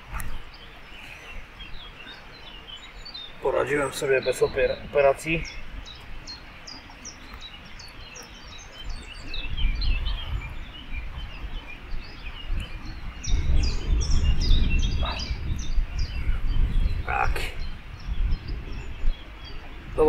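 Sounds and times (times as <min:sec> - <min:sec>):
small birds chirping: 0:00.0 - 0:20.0
wind buffeting microphone: 0:00.0 - 0:20.0.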